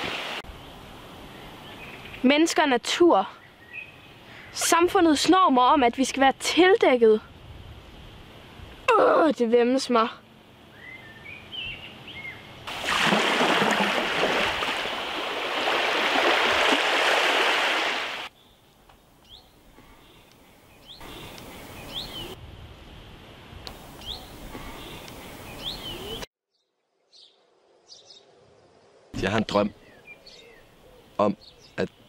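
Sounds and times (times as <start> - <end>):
small birds chirping: 3.2 - 4.7, 10.7 - 12.5, 18.3 - 22.4, 23.9 - 32.0.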